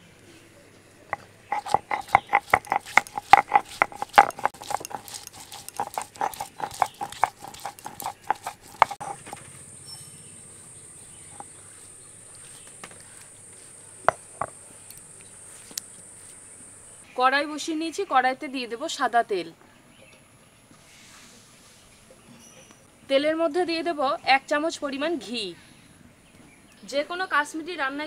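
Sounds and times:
stone roller grinding on stone slab: 1.1s - 9.5s, 11.2s - 11.6s.

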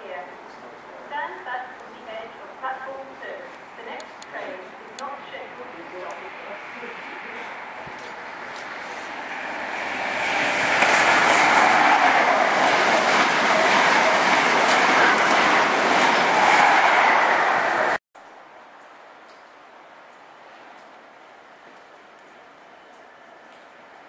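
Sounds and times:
train passing at speed: 5.4s - 18.0s.

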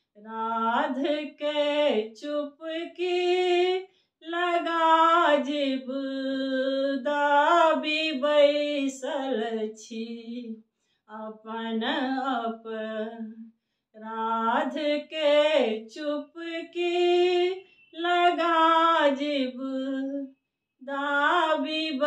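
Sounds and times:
woman singing unaccompanied: 0.2s - 13.4s, 14.0s - 22.0s.

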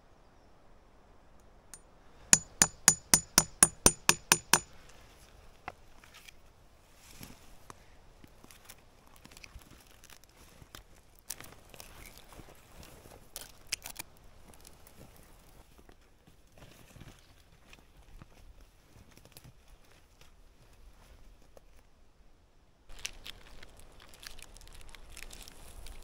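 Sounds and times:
hammer striking nail: 2.4s - 4.7s.

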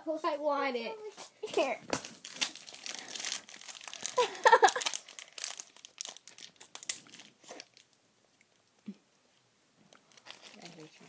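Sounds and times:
candy wrapper crinkling: 1.9s - 8.8s, 9.9s - 11.0s.

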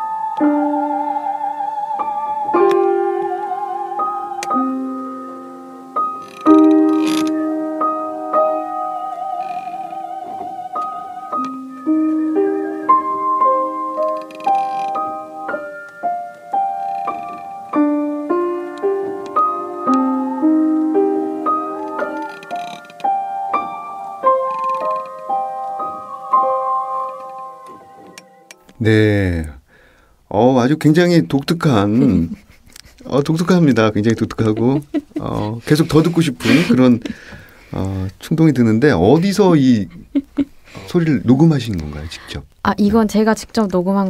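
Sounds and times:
slow solo piano: 0.0s - 28.7s
woman singing operatically: 0.3s - 4.8s, 8.3s - 11.5s, 19.8s - 22.6s.

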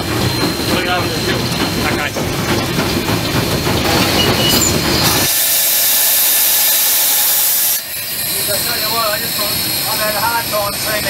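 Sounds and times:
steam locomotive clattering rumble: 0.0s - 11.0s
hiss of escaping steam: 5.0s - 11.0s.

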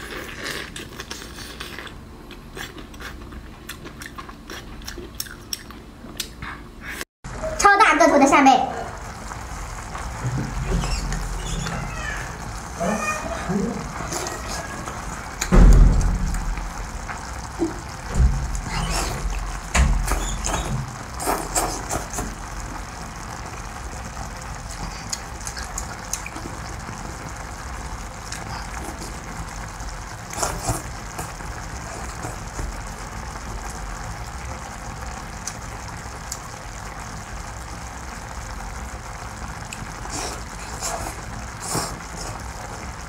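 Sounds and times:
slurping and chewing: 0.0s - 7.0s, 21.2s - 22.4s, 24.7s - 26.7s, 30.2s - 32.5s, 39.7s - 42.6s.

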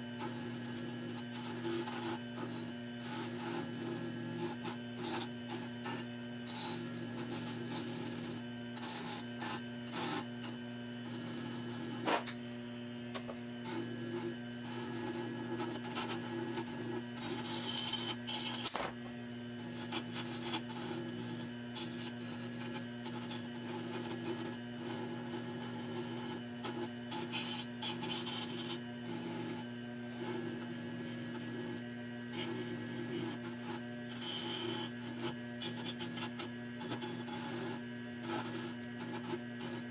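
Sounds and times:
lathe motor hum: 0.0s - 39.9s
parts scraping spinning wheel: 4.4s - 10.6s, 14.6s - 19.0s, 27.1s - 29.4s.

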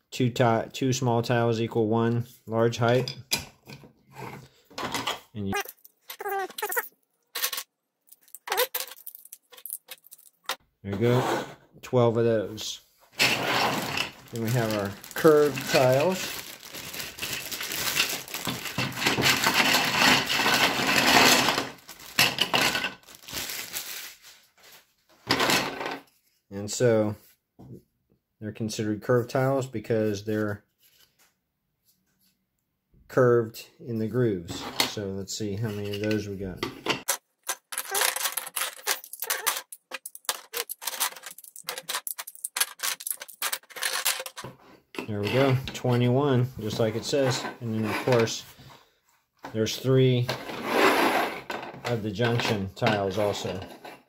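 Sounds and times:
plastic bag crinkling: 5.6s - 10.5s, 13.2s - 24.8s, 37.4s - 44.4s
plastic tiles clacking: 5.6s - 10.6s, 13.8s - 23.0s, 37.0s - 44.5s
plastic tiles clattering on table: 7.4s - 10.6s, 13.2s - 23.5s, 36.9s - 44.6s.

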